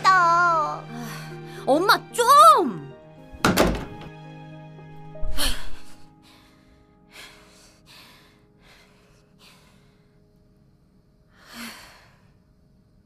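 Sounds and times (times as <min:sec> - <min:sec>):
girl sighing: 0:05.2 - 0:06.1
girl breathing heavily: 0:05.2 - 0:10.3, 0:11.3 - 0:12.5.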